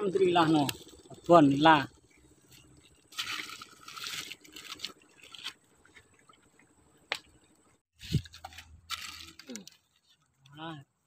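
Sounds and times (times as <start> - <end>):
river water splashing: 2.0 - 9.4.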